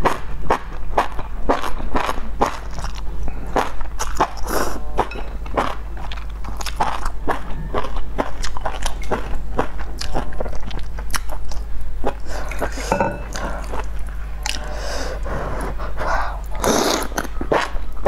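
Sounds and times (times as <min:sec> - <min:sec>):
slurping and chewing: 0:16.5 - 0:17.8.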